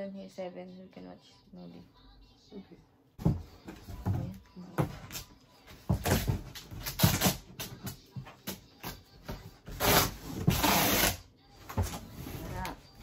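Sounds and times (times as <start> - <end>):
duct tape unrolling and tearing: 6.6 - 7.8, 9.7 - 11.3.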